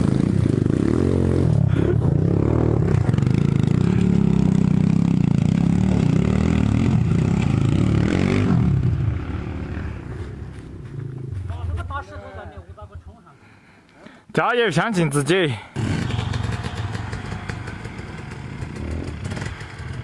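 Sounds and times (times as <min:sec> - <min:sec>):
dirt bike engine revving: 0:00.0 - 0:10.1, 0:15.5 - 0:20.0.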